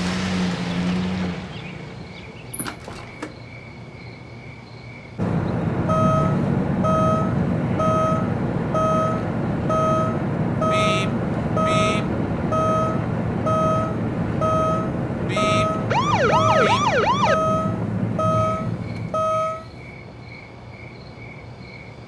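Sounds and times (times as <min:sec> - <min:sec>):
engine rumble: 0:00.0 - 0:03.5, 0:05.2 - 0:19.9
seat belt warning chime: 0:17.4 - 0:19.7.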